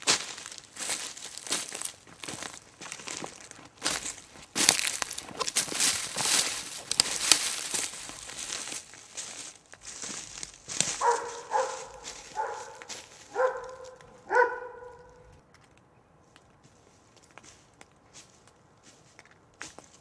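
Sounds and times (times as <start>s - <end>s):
footsteps crunching through leaves: 0.0s - 15.3s, 16.6s - 20.0s
animal barking calls: 10.8s - 15.4s.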